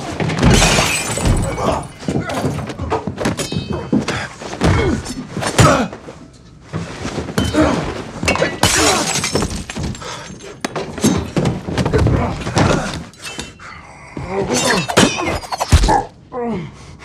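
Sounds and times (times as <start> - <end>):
loud shattering crash: 0.4 - 2.0
glass breaking: 0.4 - 2.6, 8.3 - 10.4.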